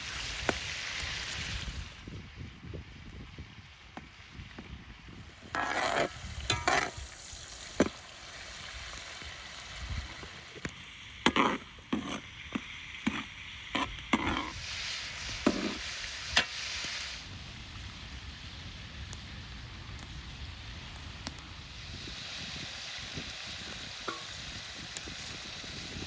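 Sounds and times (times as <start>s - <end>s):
meat sizzling in a pot: 0.0s - 26.0s
metal spatula scraping a pot: 5.5s - 7.0s, 11.2s - 14.6s, 15.4s - 15.8s.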